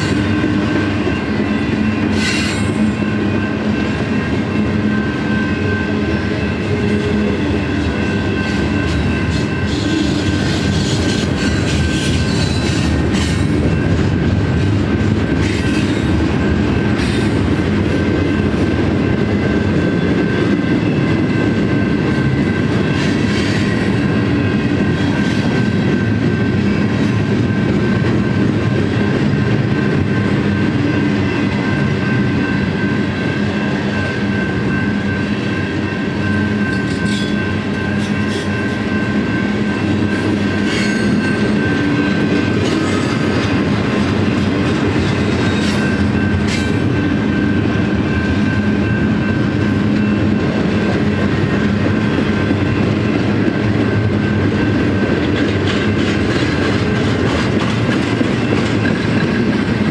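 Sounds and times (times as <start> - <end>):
high ringing tone: 0.0 - 11.7, 29.8 - 44.0, 45.4 - 55.0
clickety-clack over rail joints: 0.0 - 59.9
train wheels rumbling on rails: 0.0 - 59.9.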